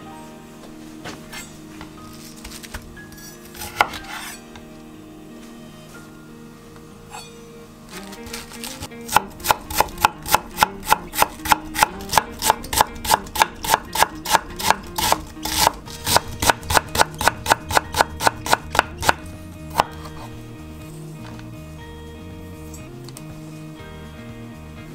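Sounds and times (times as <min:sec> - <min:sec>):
knife chopping cabbage on cutting board: 0:03.6 - 0:04.3, 0:08.3 - 0:20.3.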